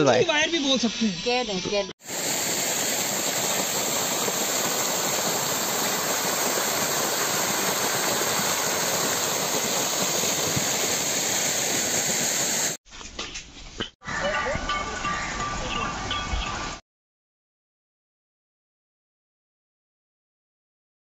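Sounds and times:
fountain jets splashing into water: 2.0 - 12.8.

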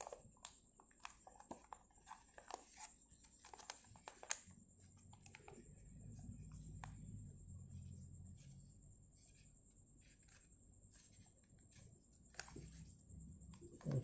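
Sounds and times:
paper crinkling as it is folded: 0.0 - 4.5.

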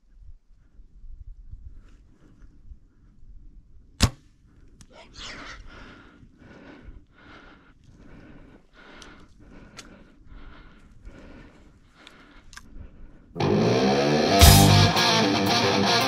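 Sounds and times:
bow string snapping: 4.0 - 4.2.

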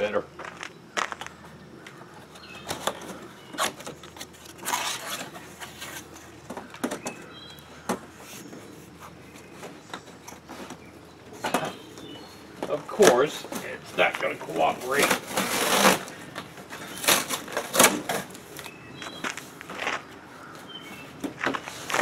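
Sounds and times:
cardboard flaps rustling: 2.3 - 7.1
metal enclosure sliding against cardboard: 2.8 - 6.2, 15.0 - 18.3.

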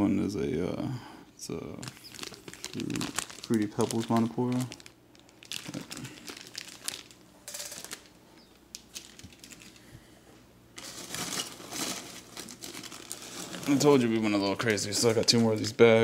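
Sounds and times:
plastic bags crinkling: 1.7 - 10.1, 10.7 - 15.8
hand rummaging through packing peanuts: 1.8 - 8.1, 8.8 - 9.9, 10.8 - 15.8.

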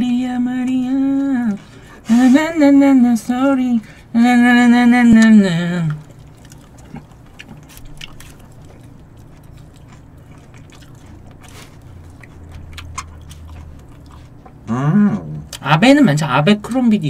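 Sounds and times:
low steady hum: 0.0 - 17.0
person chewing food: 0.5 - 15.7.

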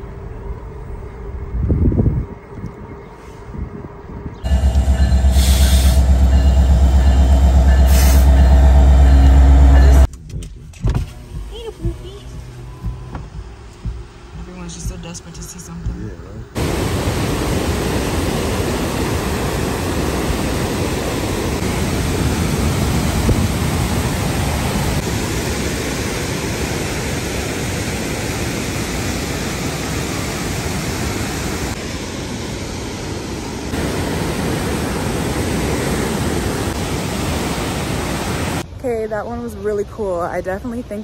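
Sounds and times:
waterfall rushing: 16.6 - 32.3, 32.9 - 38.6.

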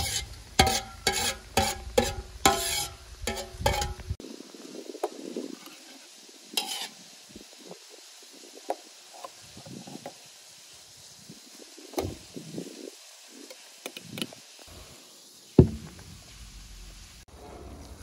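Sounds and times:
loud thump: 15.6 - 16.2.

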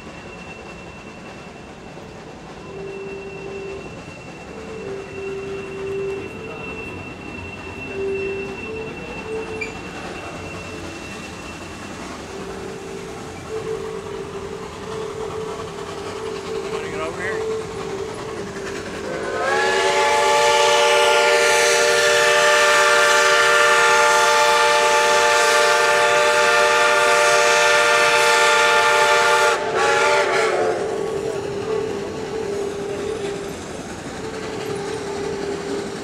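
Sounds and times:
steam whistle blast: 0.0 - 36.0
train running noise: 0.0 - 36.0.

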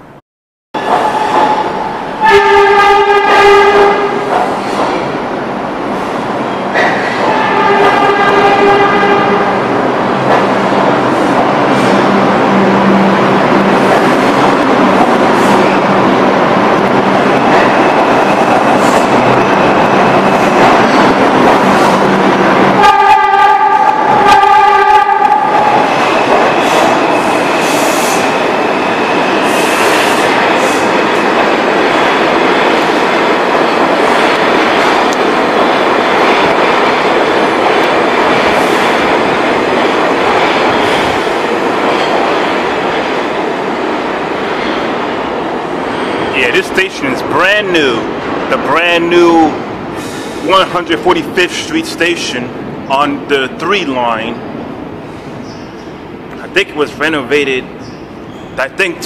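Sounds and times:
subway train wheel and motor noise: 0.8 - 59.0
train horn blasts: 2.2 - 4.2, 7.3 - 9.6, 22.8 - 25.6.

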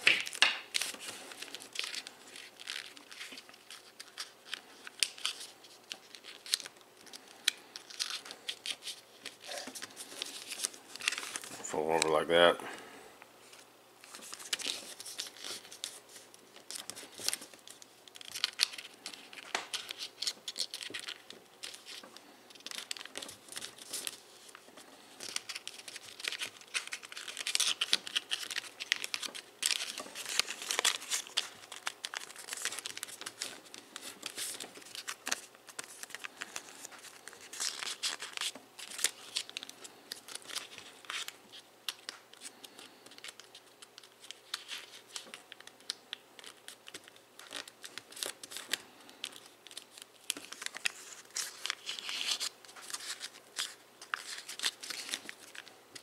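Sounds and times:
foil paper crinkling: 0.0 - 12.6, 13.5 - 56.0.

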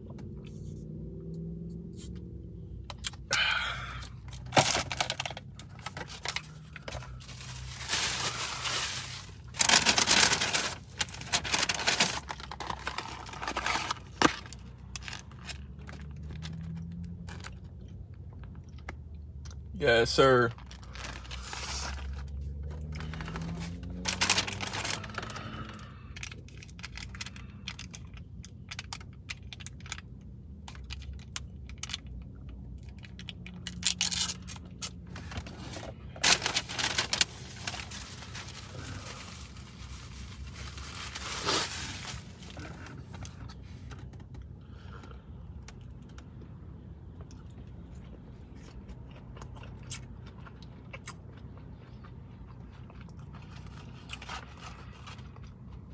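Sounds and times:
paper packaging rustling: 4.4 - 15.8, 20.6 - 25.4, 35.1 - 43.9.

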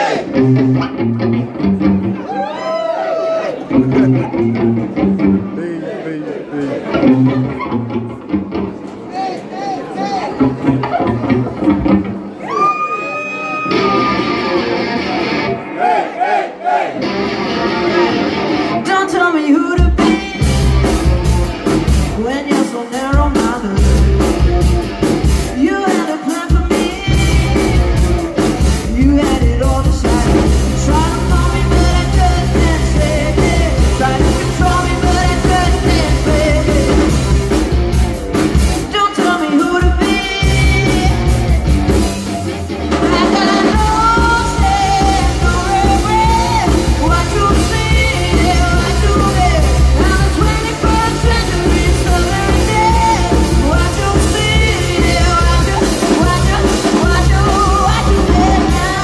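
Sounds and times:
lead vocal singing: 0.0 - 0.6, 3.7 - 7.6, 25.5 - 37.3, 42.9 - 59.0
bass guitar: 0.0 - 2.5, 3.6 - 5.6, 6.8 - 9.0, 10.3 - 12.5, 13.6 - 15.7, 17.0 - 19.0, 19.8 - 22.4, 23.1 - 25.8, 26.5 - 59.0
electric guitar: 0.0 - 5.6, 6.8 - 9.0, 10.3 - 15.8, 17.0 - 59.0
drum kit: 19.7 - 59.0.

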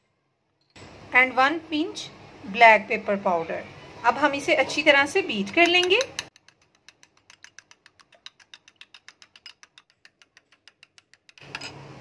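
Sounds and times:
spoon whisking eggs in glass bowl: 5.4 - 11.8.

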